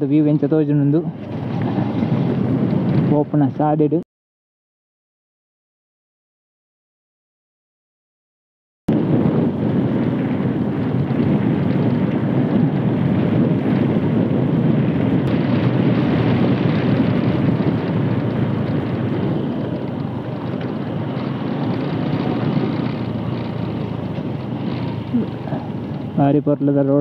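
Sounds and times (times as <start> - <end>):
road noise: 0.0 - 4.0, 8.9 - 27.0
wind on microphone: 0.0 - 4.0, 8.9 - 27.0
motorcycle engine: 0.8 - 3.3, 8.9 - 27.0.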